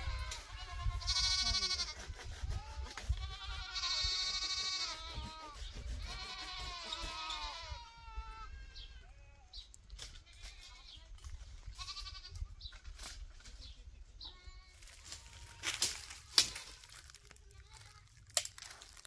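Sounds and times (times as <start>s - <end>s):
goats bleating: 0.0s - 2.0s, 2.6s - 9.5s, 11.7s - 12.4s.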